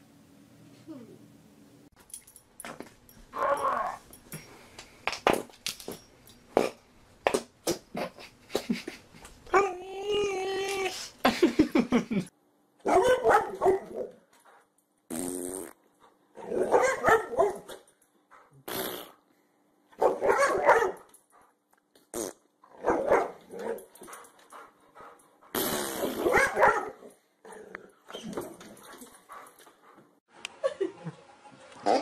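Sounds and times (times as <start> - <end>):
dog barking and growling: 3.3 - 4.1, 12.8 - 14.2, 16.3 - 18.6, 20.0 - 21.1, 22.6 - 24.2, 26.0 - 29.4, 31.8 - 32.0.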